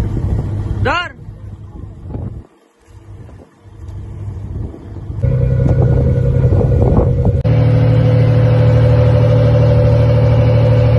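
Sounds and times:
wind noise: 0.0 - 7.5
boat engine droning: 0.0 - 10.9
water noise: 0.0 - 10.9.

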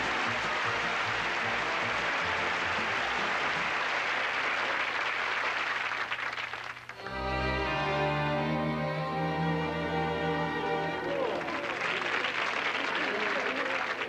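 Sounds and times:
audience applauding: 0.0 - 7.3, 10.6 - 14.0
band music: 7.0 - 11.8.

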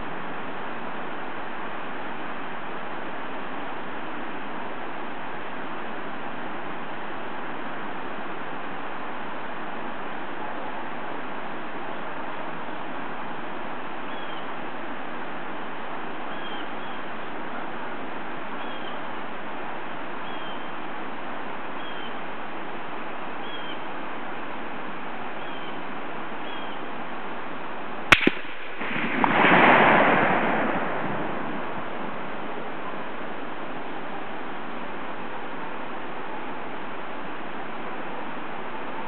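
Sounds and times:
steady hiss: 0.0 - 39.0
gunshot echo: 28.1 - 32.5
rifle shot: 28.1 - 32.5.

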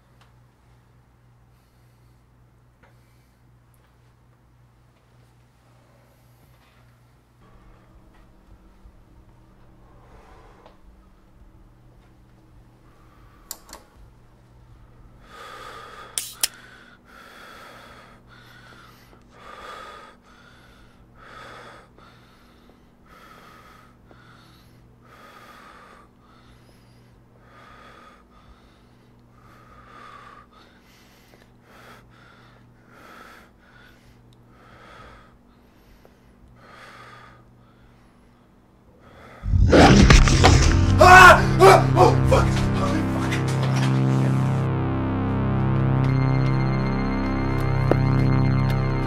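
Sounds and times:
breathing: 1.4 - 3.6, 5.6 - 6.9, 9.8 - 11.2, 15.2 - 39.4
low hum: 7.4 - 15.4, 39.4 - 49.0.

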